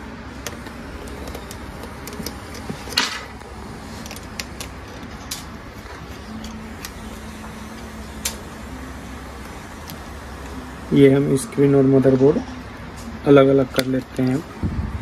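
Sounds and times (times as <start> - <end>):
low steady hum: 0.0 - 15.0
screwdriver and metal parts clicking: 0.4 - 7.0.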